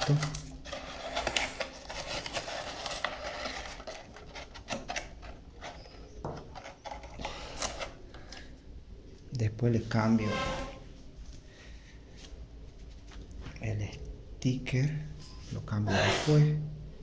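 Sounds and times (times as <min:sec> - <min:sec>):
plastic bottle crinkling: 0:00.0 - 0:08.0.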